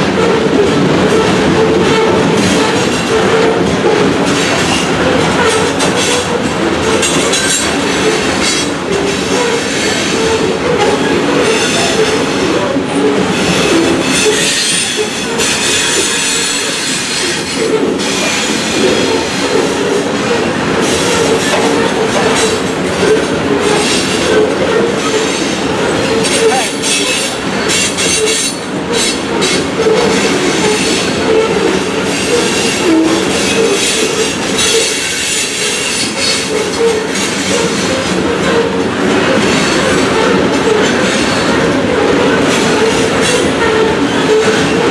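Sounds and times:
train wheels rumbling on rails: 0.0s - 44.9s
train wheels squealing: 9.3s - 12.3s, 13.1s - 20.0s, 23.6s - 41.6s.

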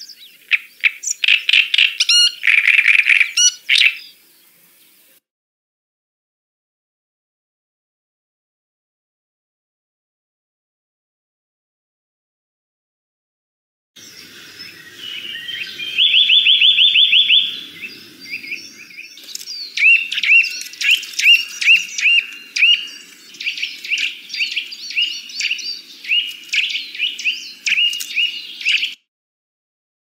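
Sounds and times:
bird singing trills and whistles: 0.0s - 4.2s, 14.0s - 29.1s.

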